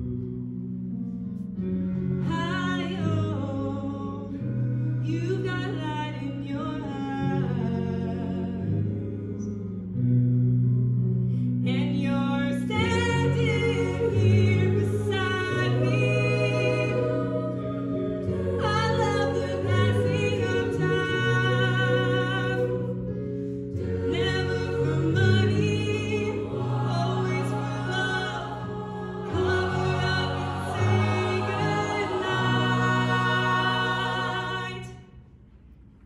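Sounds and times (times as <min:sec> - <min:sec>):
choir sustained harmonies: 0:05.7 - 0:10.2, 0:12.6 - 0:35.2.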